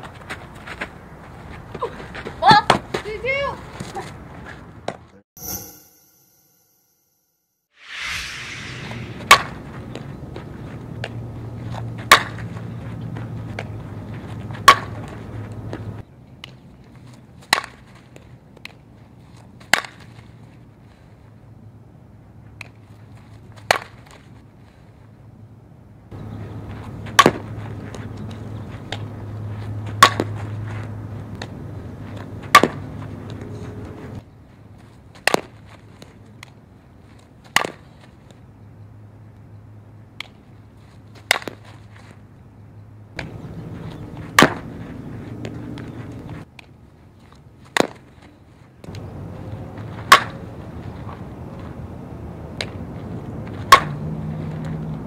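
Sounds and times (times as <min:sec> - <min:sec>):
bat striking ball: 0:09.0 - 0:09.6, 0:27.2 - 0:27.5, 0:30.0 - 0:30.3, 0:32.5 - 0:32.8, 0:44.3 - 0:44.6, 0:50.1 - 0:50.4, 0:53.7 - 0:54.0.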